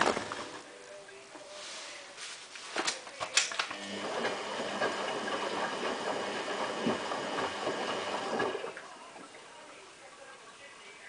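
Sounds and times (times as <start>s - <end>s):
washing machine drum sloshing: 0.0s - 0.7s, 3.8s - 9.6s.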